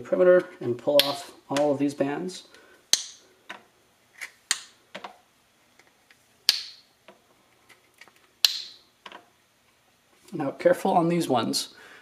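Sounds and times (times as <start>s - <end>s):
silicone strands snapping: 2.9s - 3.2s, 6.5s - 6.9s, 8.4s - 8.8s.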